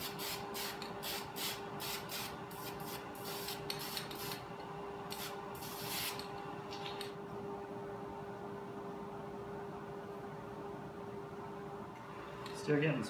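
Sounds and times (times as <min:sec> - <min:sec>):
spray can hissing: 0:05.1 - 0:06.2.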